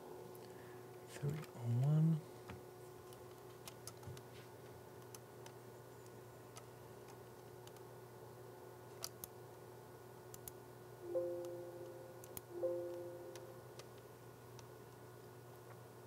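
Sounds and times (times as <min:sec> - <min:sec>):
soft two-note chime: 0:11.1 - 0:13.7.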